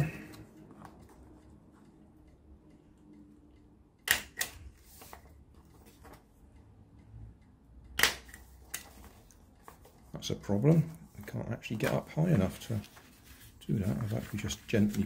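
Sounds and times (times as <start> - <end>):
paper rustling: 4.8 - 6.2, 8.4 - 15.0
stapler clacking: 8.0 - 8.8.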